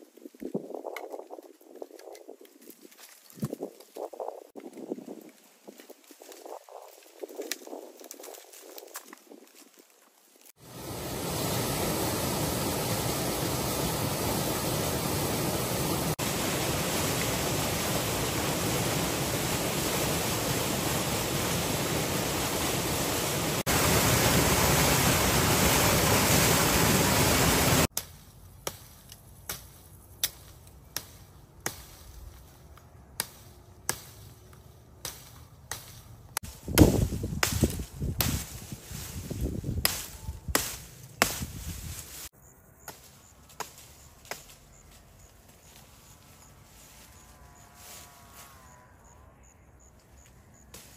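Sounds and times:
spring water gushing: 0:10.6 - 0:27.9
axe chopping tree trunk: 0:27.9 - 0:32.0, 0:36.7 - 0:38.4, 0:40.6 - 0:41.6.

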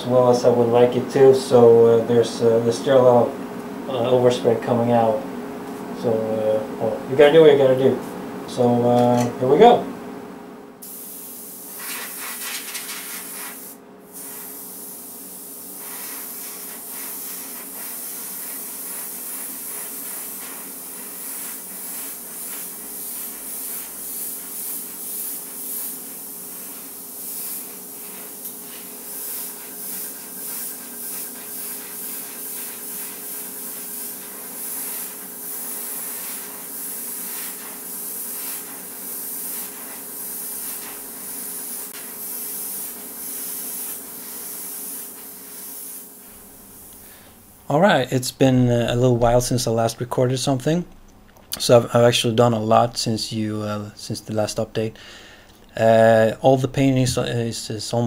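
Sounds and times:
airbrush spraying hiss: 0:10.8 - 0:47.5.

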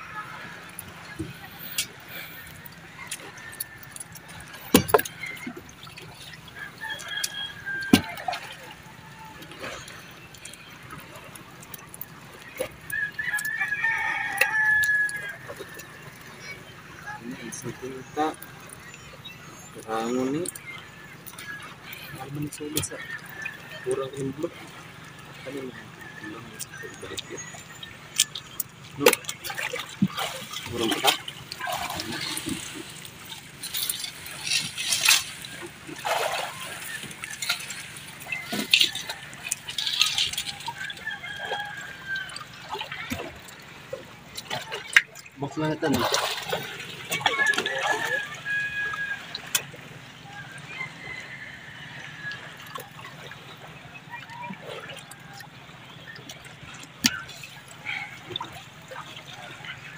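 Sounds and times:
water splashing and dripping: 0:00.0 - 0:59.9
rooster crowing: 0:06.7 - 0:08.5, 0:12.9 - 0:15.6, 0:40.5 - 0:42.6, 0:47.2 - 0:49.5, 0:50.5 - 0:52.6.

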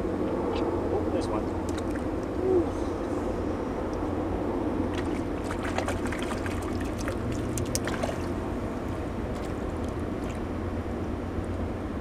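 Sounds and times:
steady low rumble: 0:00.0 - 0:12.0
fish splashing at water surface: 0:04.9 - 0:08.6.

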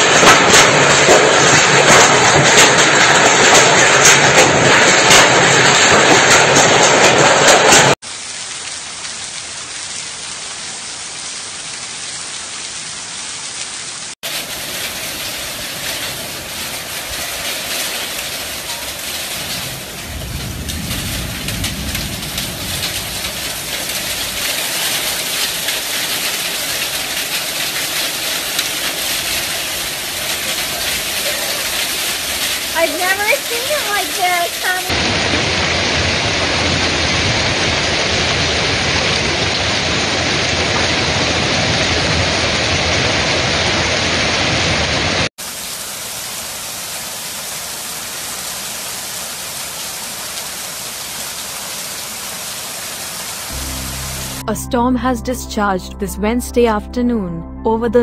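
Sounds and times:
heavy hail and rain: 0:00.0 - 0:54.5
low rumble: 0:19.3 - 0:24.4, 0:53.5 - 0:58.0.

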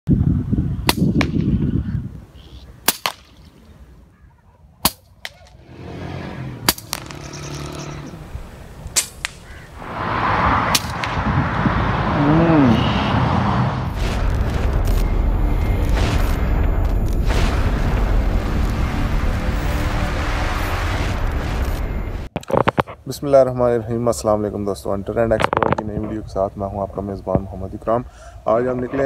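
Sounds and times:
air rifle shot cracks: 0:02.8 - 0:03.5, 0:08.9 - 0:09.6, 0:10.7 - 0:11.3.

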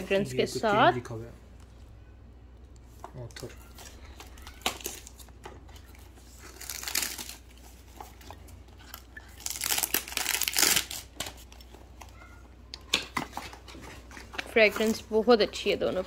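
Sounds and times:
packaging crinkling: 0:03.2 - 0:12.2.

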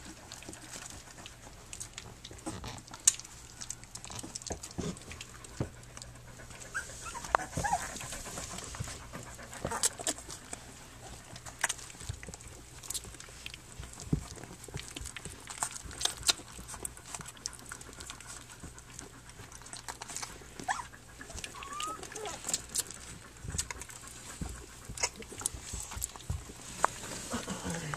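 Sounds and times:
puppies suckling: 0:00.0 - 0:27.9
puppy squeaks: 0:06.7 - 0:07.9, 0:20.6 - 0:22.6.

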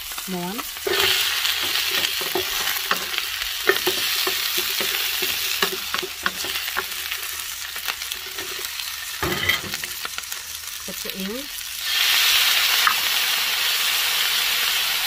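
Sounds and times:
food sizzling in oil: 0:00.0 - 0:15.0
spatula scraping a wok: 0:00.8 - 0:10.5.

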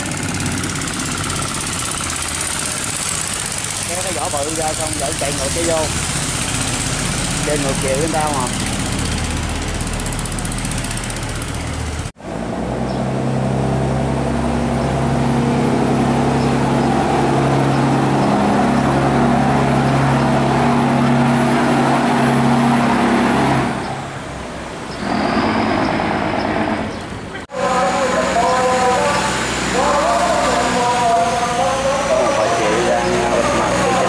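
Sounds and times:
churning water: 0:00.0 - 0:12.0
large diesel engine running: 0:00.0 - 0:34.0.

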